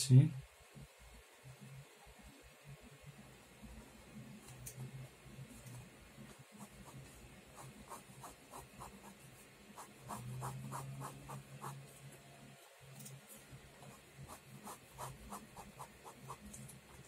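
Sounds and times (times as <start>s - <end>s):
pen scratching on paper: 6.3s - 12.0s, 13.8s - 17.0s.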